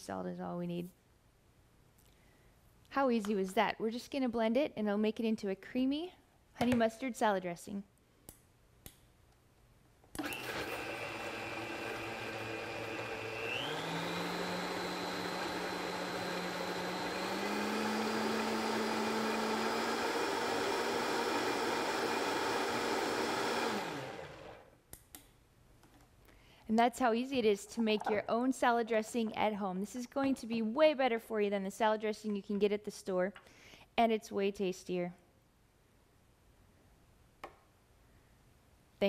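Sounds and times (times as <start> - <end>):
blender whining: 10.2 - 24.7.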